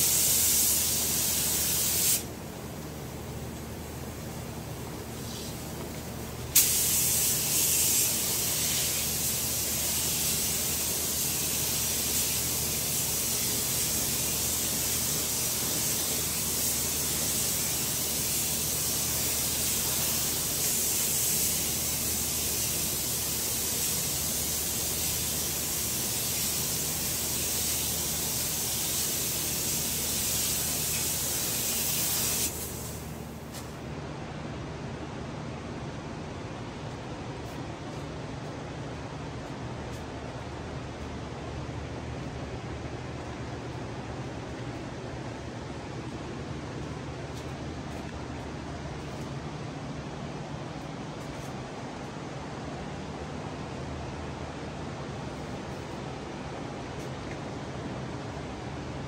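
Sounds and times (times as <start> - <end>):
paint spray gun hissing: 0.0 - 2.3, 6.5 - 33.7
steady low hum: 0.0 - 59.0.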